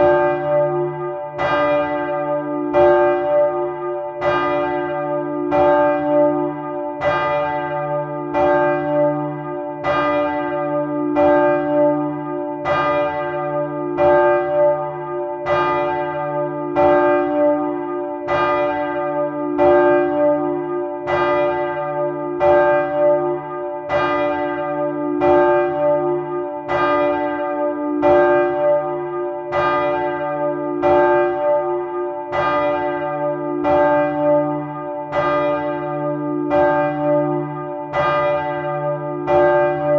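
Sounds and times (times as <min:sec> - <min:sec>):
large church bell ringing: 0:00.0 - 0:39.9.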